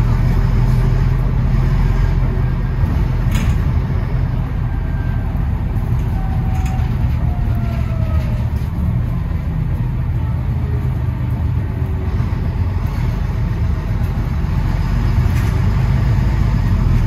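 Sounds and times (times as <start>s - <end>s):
bus engine droning: 0.0s - 17.0s.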